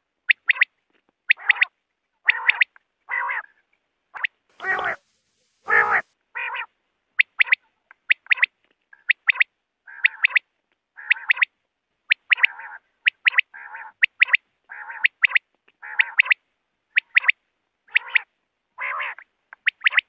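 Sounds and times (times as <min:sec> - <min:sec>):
quail calling: 0:00.3 - 0:00.7, 0:01.3 - 0:05.0, 0:05.6 - 0:11.5, 0:12.1 - 0:20.0.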